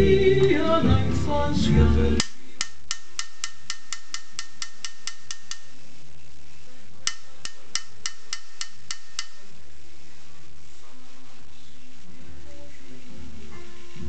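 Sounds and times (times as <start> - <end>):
hammer tapping metal punch: 2.2 - 5.7, 7.1 - 9.4.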